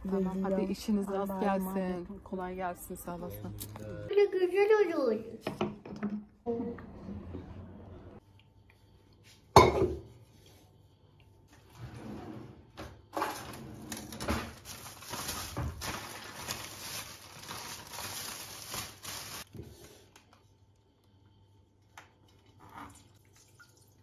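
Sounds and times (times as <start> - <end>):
plastic bag rustling: 13.4 - 19.5.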